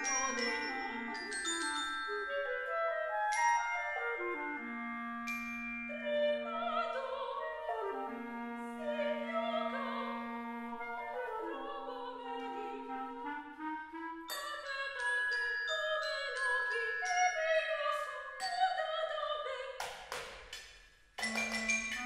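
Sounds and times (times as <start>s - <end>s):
clarinet: 0.0s - 15.0s, 21.2s - 22.0s.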